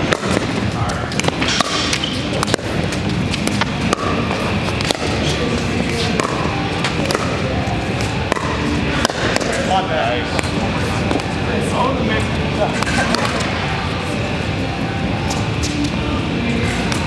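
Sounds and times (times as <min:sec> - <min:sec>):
gym hall background: 0:00.0 - 0:17.0
paddles popping ball: 0:03.3 - 0:05.2, 0:06.1 - 0:07.4.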